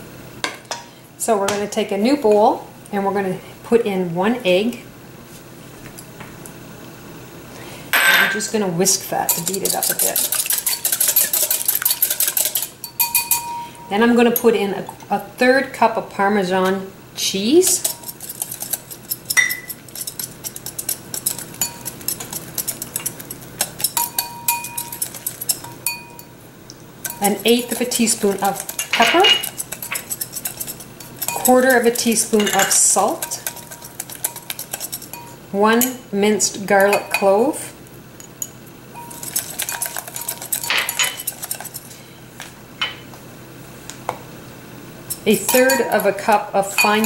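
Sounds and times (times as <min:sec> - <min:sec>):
whisk clicking against ceramic bowl: 0:09.3 - 0:13.6, 0:17.6 - 0:26.3, 0:27.0 - 0:35.9, 0:38.4 - 0:41.9, 0:45.1 - 0:47.0.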